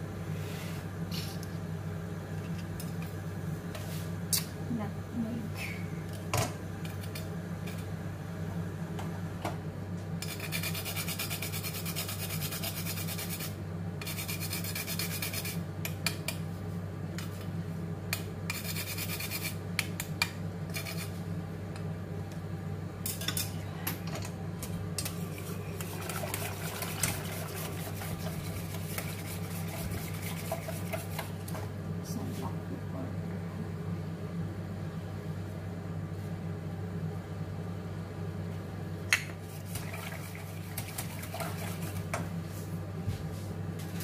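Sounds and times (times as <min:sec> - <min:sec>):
steady low hum: 0:00.0 - 0:44.0
food scraping on metal grater: 0:10.2 - 0:15.6, 0:18.5 - 0:19.6, 0:20.7 - 0:21.2, 0:25.4 - 0:31.3.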